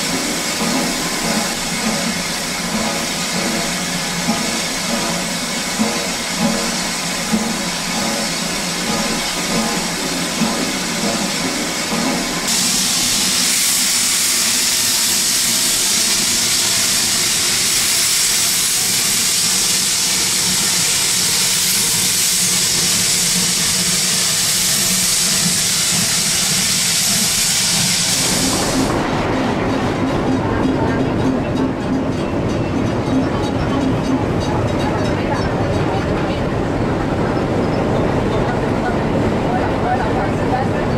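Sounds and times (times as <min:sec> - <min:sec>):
steam hissing: 0:00.0 - 0:29.6.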